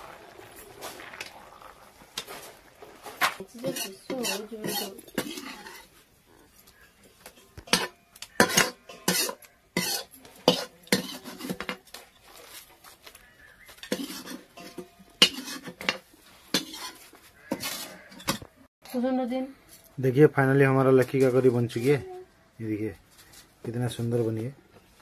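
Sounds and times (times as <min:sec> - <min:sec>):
metal spoon clinking on bowls: 0:03.6 - 0:05.8, 0:07.3 - 0:11.8.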